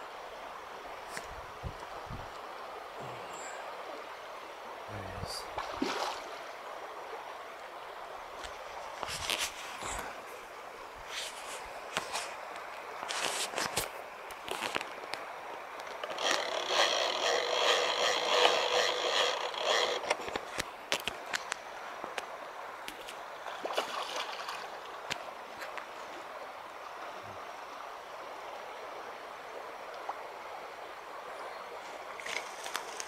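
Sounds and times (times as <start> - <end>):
whirring buzz: 16.0 - 20.3.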